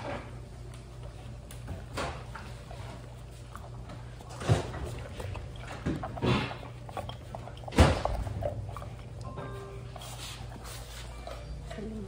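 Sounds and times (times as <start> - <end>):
dog chewing: 0.0 - 12.0.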